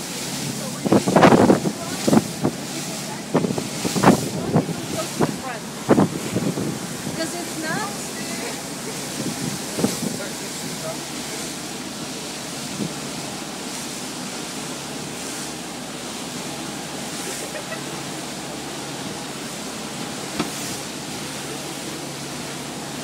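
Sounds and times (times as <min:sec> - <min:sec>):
wind on microphone: 0:00.0 - 0:10.9, 0:12.6 - 0:13.4
boat engine hum: 0:00.0 - 0:23.0
wake rushing: 0:00.0 - 0:23.0.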